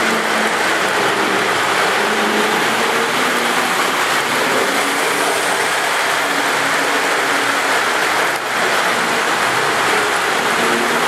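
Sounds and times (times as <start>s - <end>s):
model trains whirring on track: 0.0s - 11.0s.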